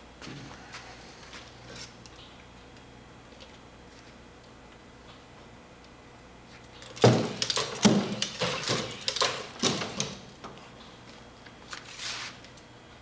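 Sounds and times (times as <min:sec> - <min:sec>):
walking robot clattering on wood: 0:06.8 - 0:10.2.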